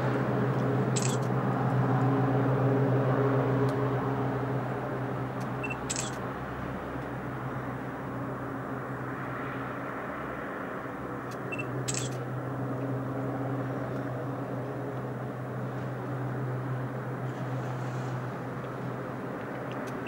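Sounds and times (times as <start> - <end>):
distant helicopter drone: 0.0 - 20.0
camera clicks: 1.0 - 1.3, 5.8 - 6.2, 11.8 - 12.2.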